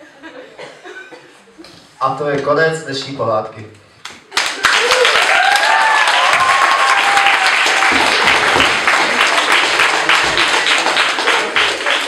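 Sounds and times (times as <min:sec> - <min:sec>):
audience applauding: 0:04.3 - 0:12.0
voices whooping: 0:04.8 - 0:07.7.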